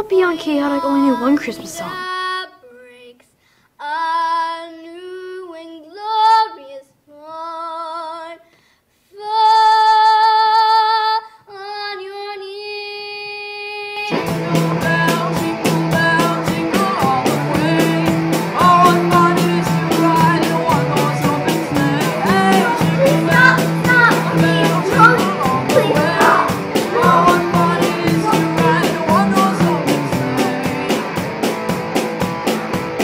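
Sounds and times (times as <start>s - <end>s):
girl singing: 0.0s - 8.5s, 9.1s - 31.1s
rock band playing: 14.1s - 33.0s.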